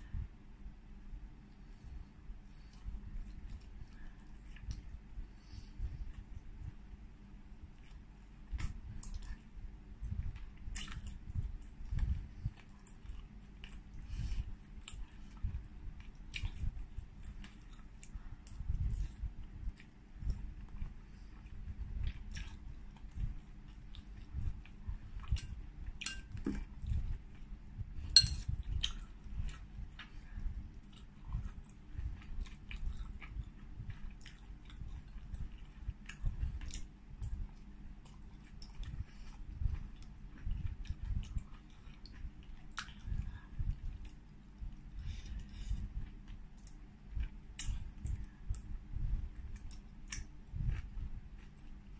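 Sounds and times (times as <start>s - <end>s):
wet chewing: 6.0s - 27.6s, 28.2s - 48.7s, 49.3s - 51.9s
mouth clicks and smacks: 49.6s - 50.8s.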